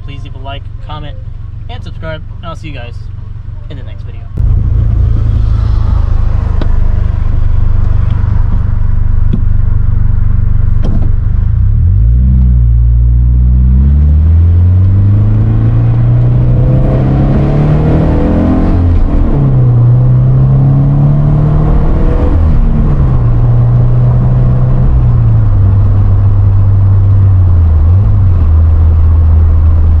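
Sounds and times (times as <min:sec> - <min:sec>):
car engine revving through gears: 0:10.7 - 0:29.9.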